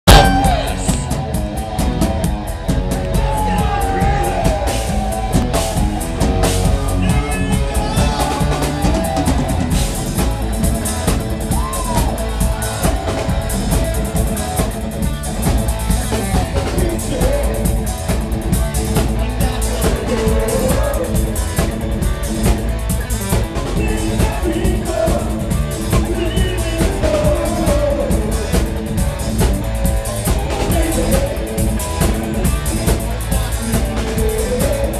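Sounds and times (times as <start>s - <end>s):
pounding drum kit: 0.0s - 34.9s
rock band playing loud: 0.0s - 34.9s
man and woman singing: 7.0s - 9.4s, 16.6s - 17.9s, 19.2s - 21.5s, 23.8s - 28.8s, 33.8s - 34.9s.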